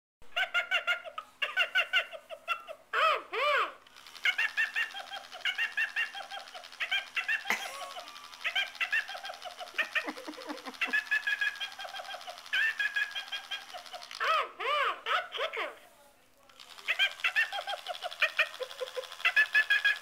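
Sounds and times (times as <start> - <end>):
toy laughing high-pitched: 0.3 - 15.9, 16.6 - 20.0
toy rising and falling ooh: 3.0 - 14.9, 16.6 - 20.0.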